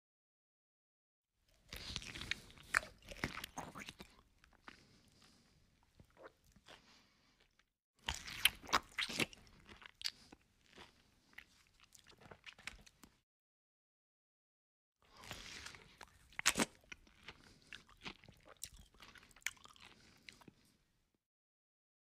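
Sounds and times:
man chewing and crunching food: 1.5s - 13.2s, 15.0s - 20.8s.

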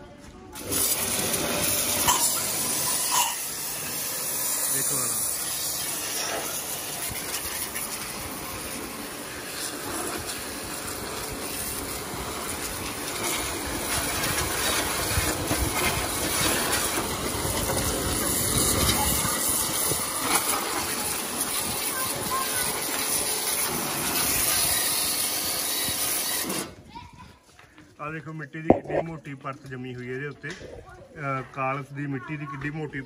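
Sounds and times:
pressure washer spraying water: 0.6s - 26.6s.

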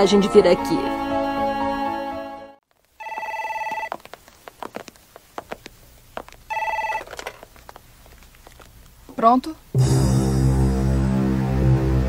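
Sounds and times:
telephone warbling ring: 3.0s - 3.9s, 6.5s - 7.2s.

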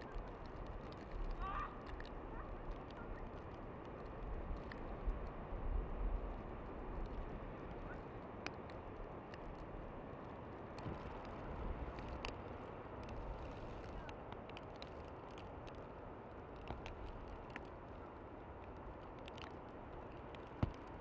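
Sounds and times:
faint ticks: 0.1s - 5.4s.

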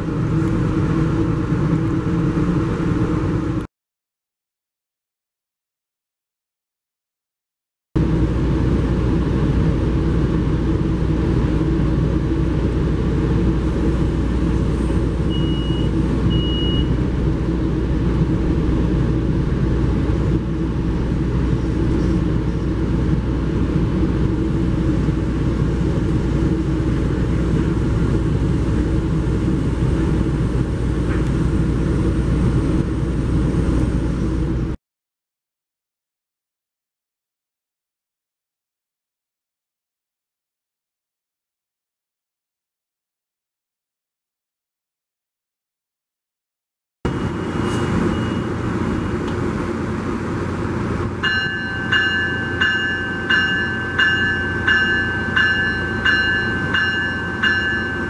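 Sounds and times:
short high beeps: 15.3s - 16.9s, 47.4s - 48.5s.

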